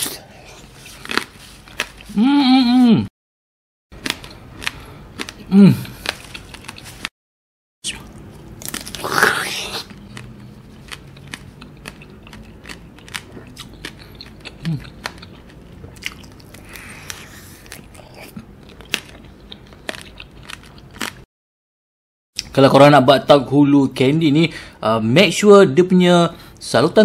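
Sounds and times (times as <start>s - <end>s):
crunchy chewing: 0.5s - 2.2s, 4.0s - 7.1s, 8.0s - 21.3s
candy coating cracking: 8.6s - 9.9s.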